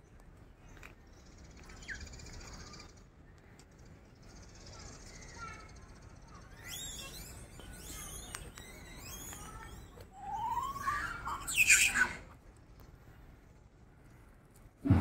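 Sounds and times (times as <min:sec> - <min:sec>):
high-pitched animal calls: 0:06.6 - 0:12.3.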